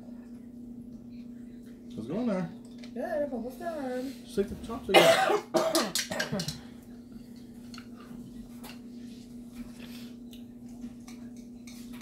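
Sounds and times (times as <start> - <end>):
low steady hum: 0.0 - 12.0
noisy eating sounds: 4.2 - 12.0
chopsticks and fork clicking on bowls: 5.7 - 6.6, 10.3 - 12.0.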